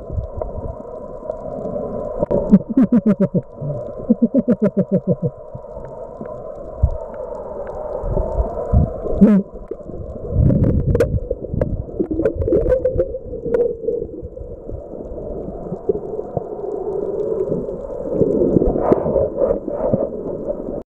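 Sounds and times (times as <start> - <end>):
water rumbling underwater: 0.0 - 20.8
water churning: 1.3 - 6.2.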